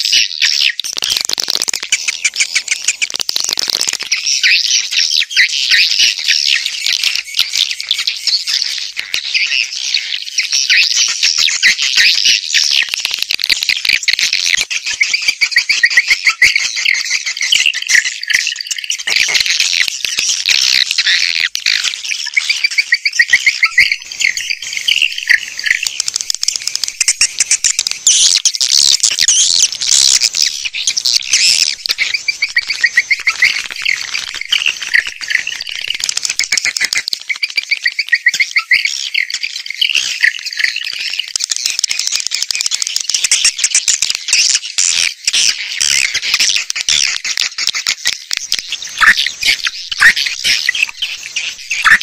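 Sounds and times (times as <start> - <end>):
swiftlets chirping and twittering: 0.0 - 52.0.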